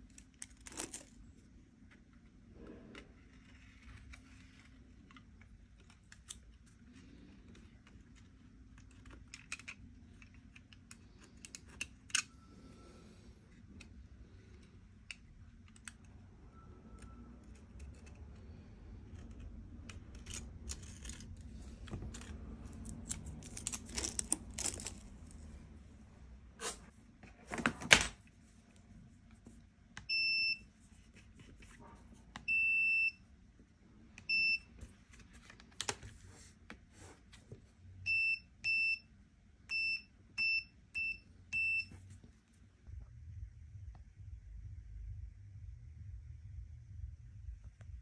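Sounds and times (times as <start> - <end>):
handling and rustling: 0.0 - 12.2, 19.2 - 25.8.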